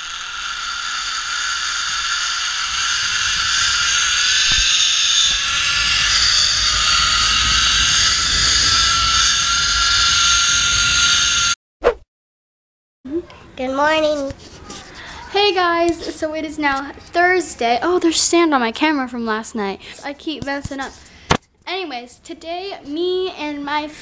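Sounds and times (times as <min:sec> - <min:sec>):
zipline trolley whirring on cable: 0:00.0 - 0:11.6
low rumble of wind: 0:01.9 - 0:11.1.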